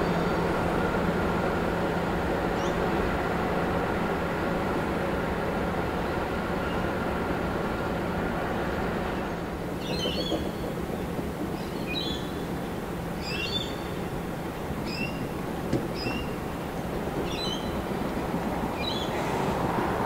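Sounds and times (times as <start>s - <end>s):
diesel locomotive rumbling: 0.0s - 20.0s
birds chirping: 13.2s - 19.2s.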